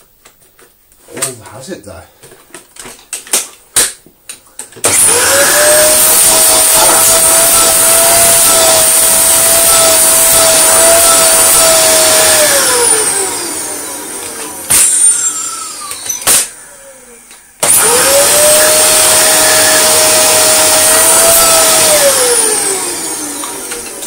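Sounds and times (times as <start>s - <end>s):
vacuum cleaner motor whining: 4.8s - 24.0s.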